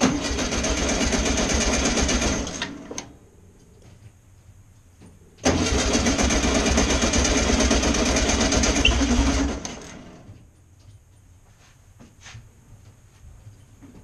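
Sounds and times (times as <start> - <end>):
starter cranking engine: 0.0 - 3.1, 5.4 - 10.3.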